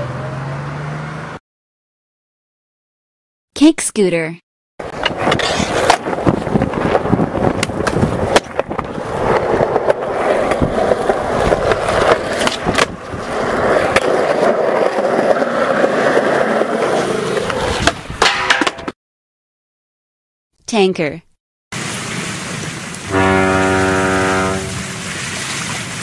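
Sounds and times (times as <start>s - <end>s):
scooter wheels rolling on pavement: 4.9s - 18.2s.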